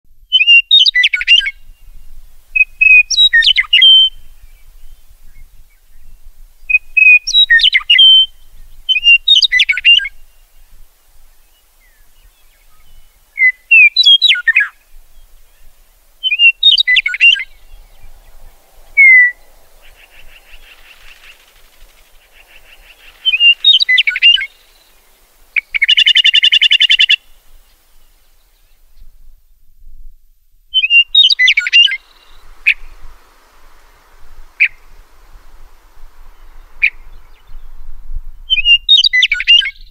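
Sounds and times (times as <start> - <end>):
bird whistling song: 0.2 - 10.6, 11.4 - 29.1, 30.7 - 35.0, 36.2 - 39.9
buzzy bird chatter call: 16.2 - 27.2.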